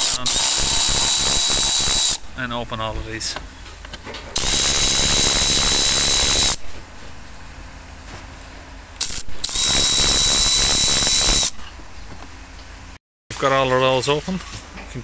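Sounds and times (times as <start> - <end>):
cordless ratchet whining: 0.0 - 2.2, 4.4 - 6.6, 9.0 - 11.6.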